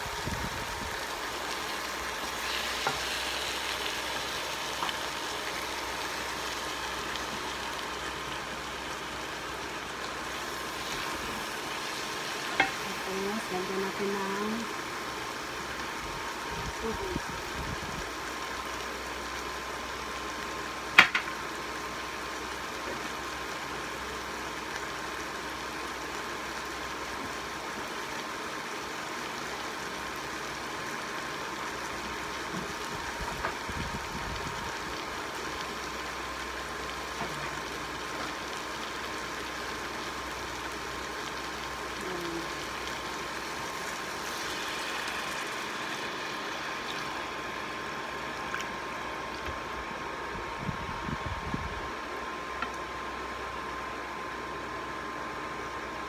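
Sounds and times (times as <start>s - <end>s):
food sizzling in a pot: 0.0s - 50.3s
water pouring into a pot: 34.8s - 49.4s.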